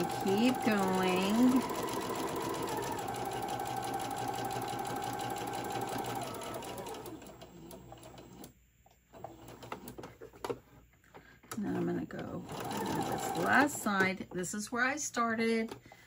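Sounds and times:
sewing machine stitching: 0.0 - 8.5, 11.6 - 14.1.

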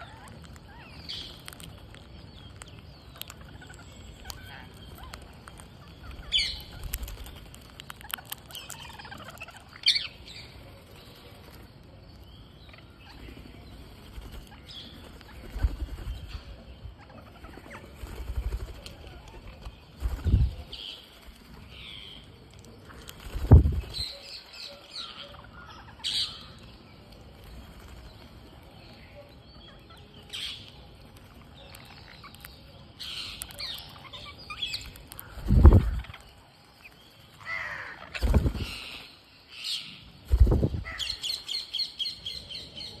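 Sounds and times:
parakeets calling and chirping: 0.0 - 43.0
wing flapping: 13.3 - 16.6, 17.4 - 21.7, 22.9 - 24.2, 34.8 - 39.1, 40.2 - 41.2.

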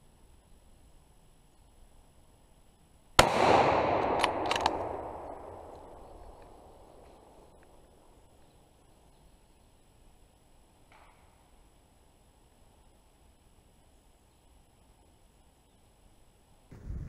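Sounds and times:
rifle shot with rolling echo: 3.2 - 8.0
sharp clicks: 3.5 - 7.8.

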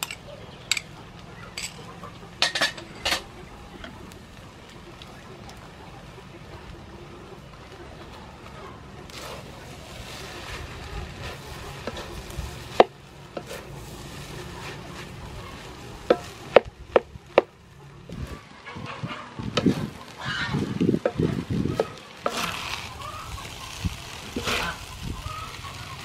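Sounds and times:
frying sizzle: 0.0 - 26.0
spatula stirring rice in wok: 8.4 - 18.4, 19.5 - 26.0.

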